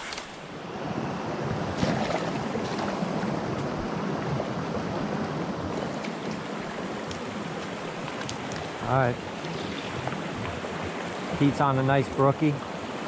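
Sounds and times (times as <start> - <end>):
brook rushing over stones: 1.7 - 12.6.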